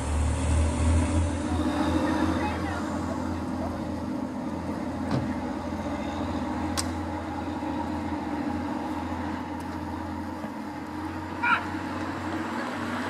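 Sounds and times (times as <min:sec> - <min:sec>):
diesel train engine drone: 0:00.0 - 0:13.0.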